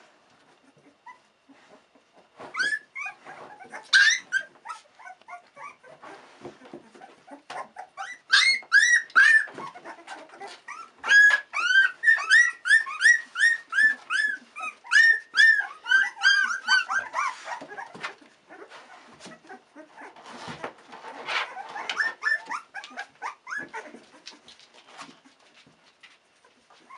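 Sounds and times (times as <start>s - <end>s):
soft rustling: 0.0s - 7.8s, 9.4s - 26.9s
puppies crying in high squeals: 2.4s - 6.1s, 6.9s - 20.1s, 21.1s - 24.4s.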